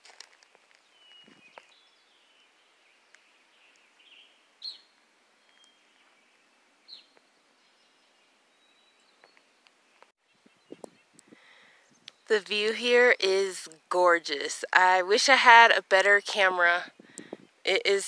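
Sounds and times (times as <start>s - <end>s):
faint bird chirps: 0.8s - 12.3s.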